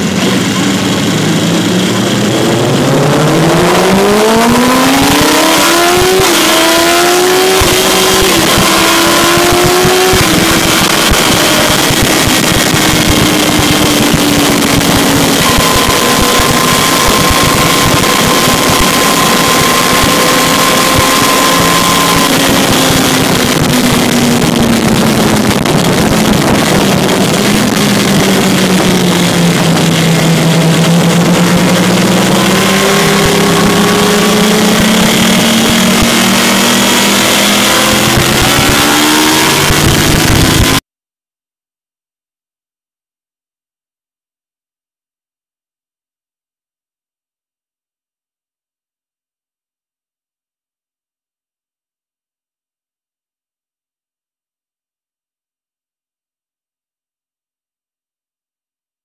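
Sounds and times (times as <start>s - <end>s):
motorcycle engine at speed: 0.0s - 40.8s
wind rush over microphone: 0.0s - 40.8s.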